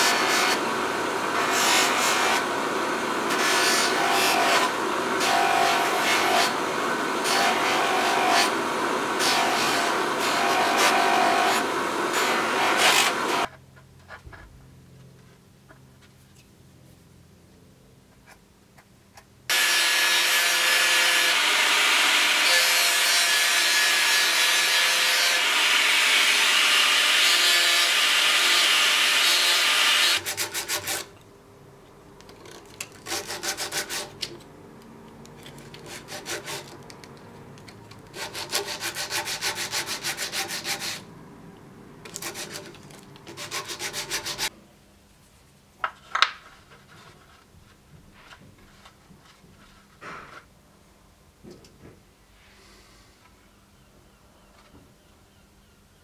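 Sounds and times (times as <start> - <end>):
power tool on wood: 0.0 - 13.5, 19.5 - 31.1
sandpaper rubbing wood: 33.0 - 34.2, 35.7 - 36.8, 38.1 - 41.1, 42.1 - 44.5.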